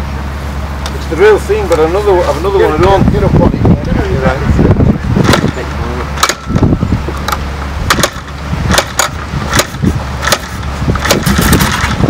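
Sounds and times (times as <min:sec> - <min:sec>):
motorcycle kickstart clacks: 0:05.2 - 0:05.6, 0:06.2 - 0:12.0.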